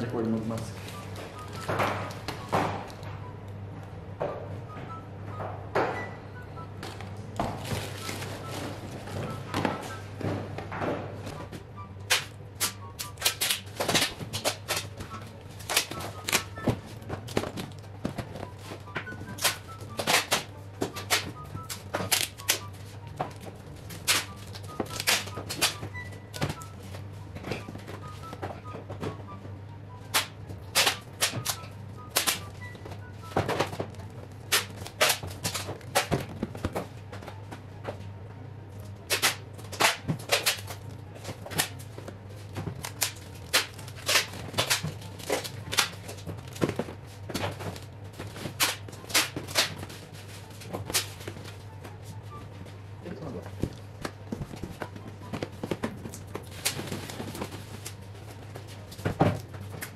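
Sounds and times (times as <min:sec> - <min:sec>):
packing tape pulled and torn: 0:15.6 - 0:16.5, 0:19.4 - 0:22.6, 0:23.3 - 0:25.8, 0:30.1 - 0:32.5, 0:34.5 - 0:36.3, 0:39.1 - 0:40.9, 0:42.8 - 0:46.8, 0:47.7 - 0:51.5.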